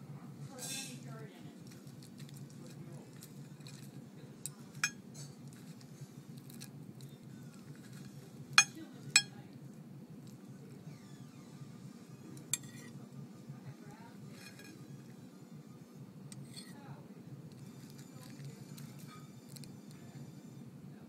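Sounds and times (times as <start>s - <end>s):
low steady hum: 0.0s - 21.0s
cutlery clinking against plate: 4.5s - 5.4s, 8.6s - 9.4s, 12.5s - 13.0s.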